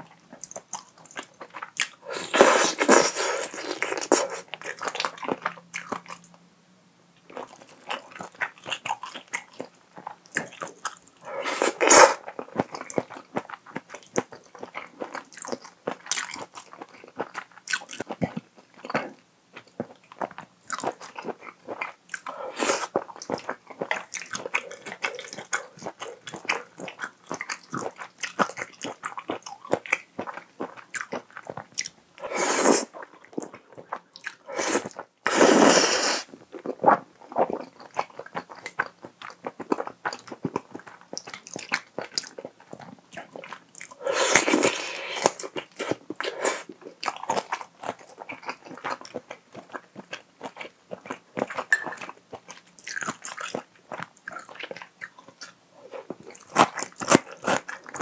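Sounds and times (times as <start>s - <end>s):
wet chewing and lip smacks: 12.2s - 32.0s, 36.5s - 58.0s
loud noodle slurp: 32.2s - 32.9s, 34.5s - 36.3s, 44.0s - 45.4s.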